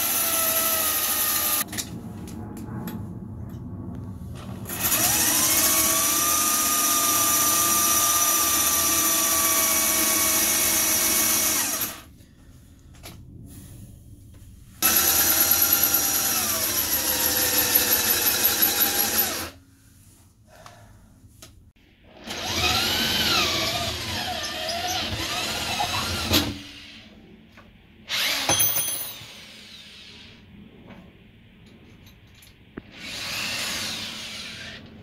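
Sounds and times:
electric drill boring: 0.0s - 1.6s, 4.7s - 12.1s, 14.8s - 19.6s, 22.2s - 27.0s, 28.1s - 28.5s, 32.9s - 34.8s.

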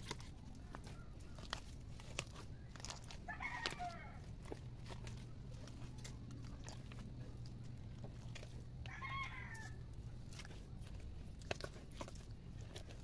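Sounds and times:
chicken calling: 3.0s - 4.3s.

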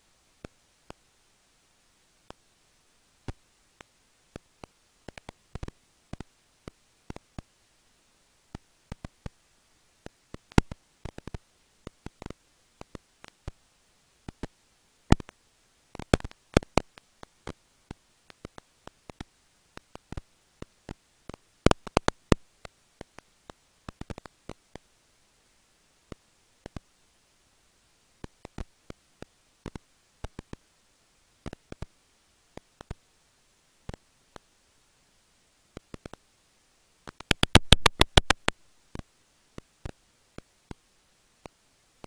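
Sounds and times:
bats clicking: 4.4s - 7.5s, 10.0s - 13.6s, 15.1s - 20.3s, 20.9s - 24.9s, 28.2s - 30.6s, 31.5s - 31.9s, 32.5s - 33.0s, 35.8s - 36.2s, 37.0s - 40.8s.

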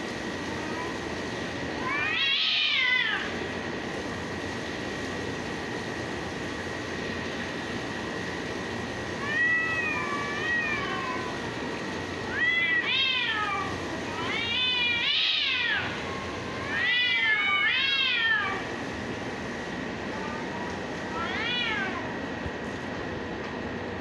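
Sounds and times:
cats yowling: 1.8s - 3.4s, 9.1s - 11.6s, 12.2s - 18.7s, 20.2s - 22.1s.

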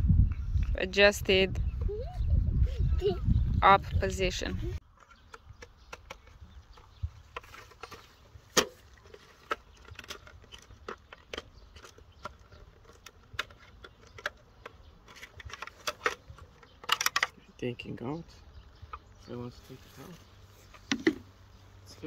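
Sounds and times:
plastic helmet clicks and rattles: 4.9s - 17.4s, 20.7s - 21.2s.

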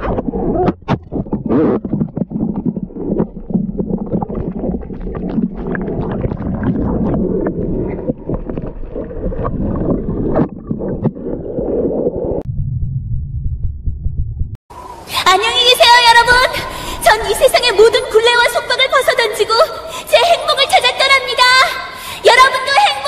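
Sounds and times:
underwater rushing and gurgling: 0.0s - 12.5s.

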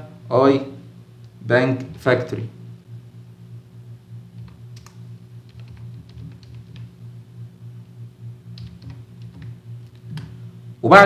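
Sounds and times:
steady low hum: 0.0s - 11.0s
keyboard typing: 4.4s - 6.9s, 8.6s - 10.3s.

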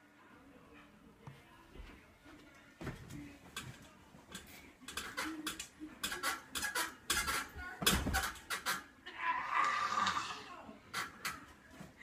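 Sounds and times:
bed springs clanking and rattling: 3.0s - 9.0s, 10.9s - 11.5s.

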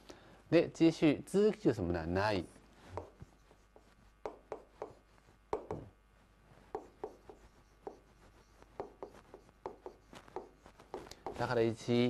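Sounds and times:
pen tapping on writing board: 3.0s - 3.2s, 3.8s - 5.9s, 6.7s - 11.5s.

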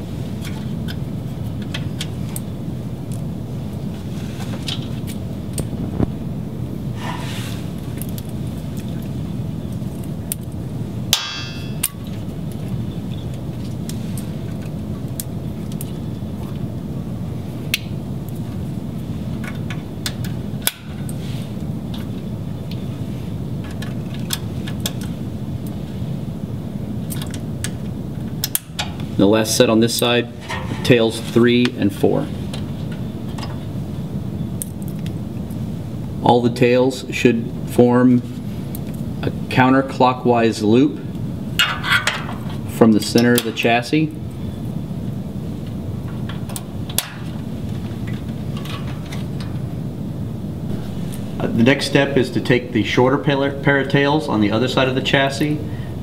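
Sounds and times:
steady low hum: 0.0s - 56.0s
short metallic clang: 11.2s - 11.8s.

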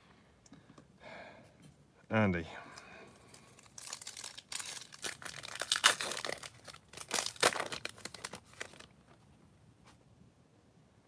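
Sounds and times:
foil pack crinkling and tearing: 3.3s - 9.0s.

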